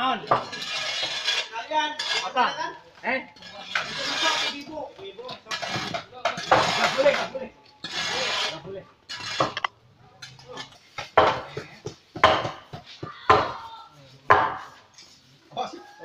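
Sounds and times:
scraping rustle: 0:03.4 - 0:11.0
meat and bone chopping on wood: 0:11.1 - 0:13.6, 0:14.3 - 0:14.7.

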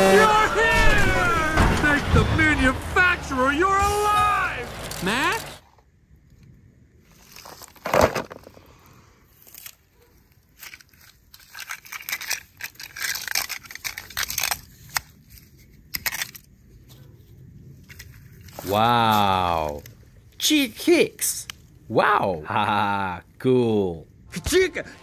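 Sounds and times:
crackling and rustling on leaves: 0:07.0 - 0:20.4.

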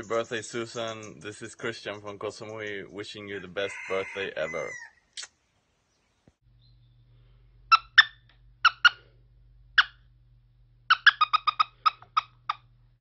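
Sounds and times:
faint low hum: 0:05.8 - 0:13.0
squeaky toy squeaks: 0:07.7 - 0:09.0, 0:10.9 - 0:12.7.

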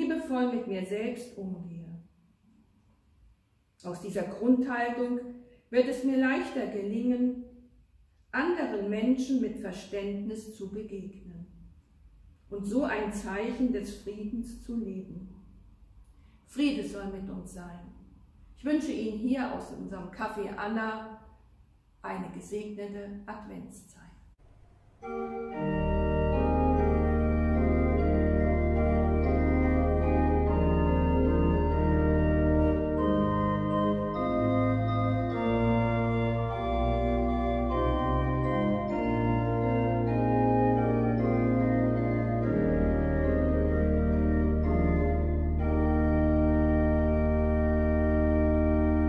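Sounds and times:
pipe organ playing chords: 0:25.0 - 0:49.0.

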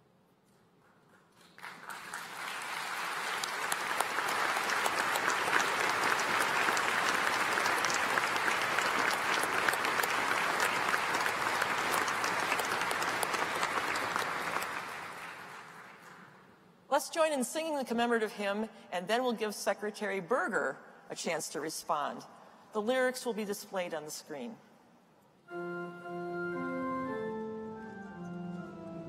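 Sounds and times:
audience applauding: 0:01.3 - 0:16.4.

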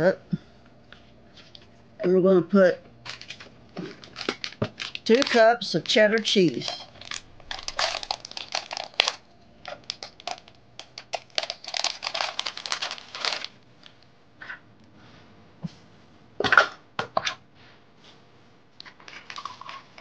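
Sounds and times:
plastic measuring cups clacking: 0:03.1 - 0:13.5
shredded cheese rustling in plastic bowl: 0:03.1 - 0:13.6.

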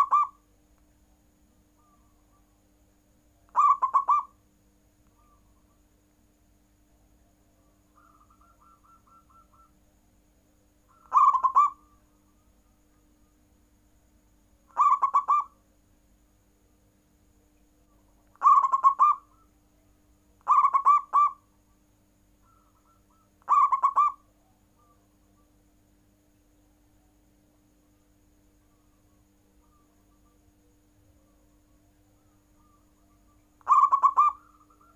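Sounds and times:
dove cooing: 0:00.0 - 0:00.4, 0:03.5 - 0:04.4, 0:07.9 - 0:09.8, 0:10.9 - 0:12.4, 0:14.7 - 0:15.6, 0:18.3 - 0:19.5, 0:20.4 - 0:21.4, 0:22.4 - 0:25.0, 0:32.2 - 0:34.9.

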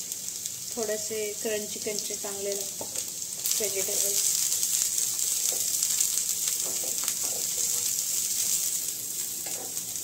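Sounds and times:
vegetables sizzling in hot oil: 0:00.0 - 0:10.0
spatula tapping and scraping pan: 0:06.5 - 0:08.0.

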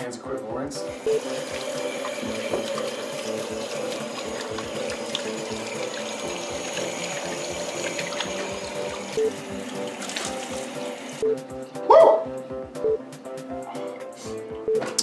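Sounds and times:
light background music: 0:00.0 - 0:15.0
tap running into metal sink: 0:01.4 - 0:09.2.

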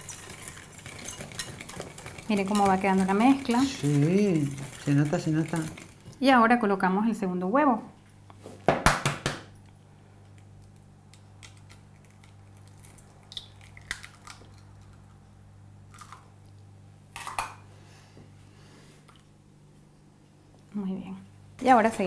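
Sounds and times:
eggshell crunching: 0:10.4 - 0:15.2, 0:15.9 - 0:16.6.

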